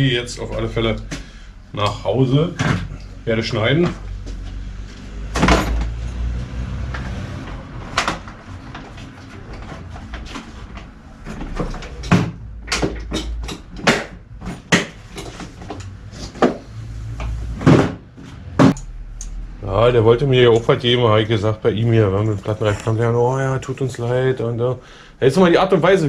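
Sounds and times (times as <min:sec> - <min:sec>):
knocks and clicks of objects handled: 0:05.3 - 0:06.3, 0:06.9 - 0:19.4.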